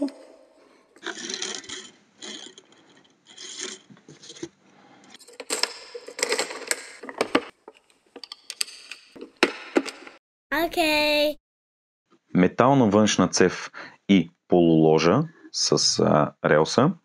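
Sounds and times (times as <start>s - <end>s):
plastic parts scraping: 1.0s - 10.1s.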